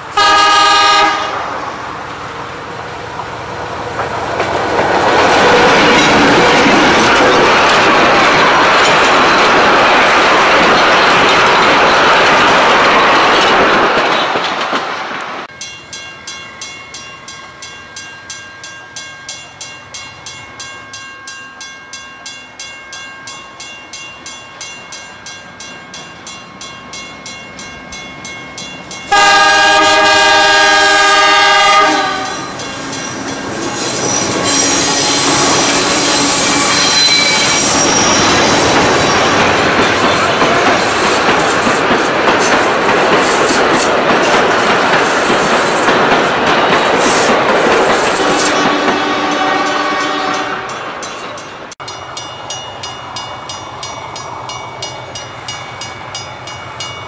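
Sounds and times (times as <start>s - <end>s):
train passing on rails: 0.0s - 57.0s
locomotive horn: 0.1s - 1.5s, 29.1s - 32.5s, 48.4s - 50.9s
steady bell ringing: 15.5s - 29.3s, 32.2s - 39.4s, 50.4s - 57.0s.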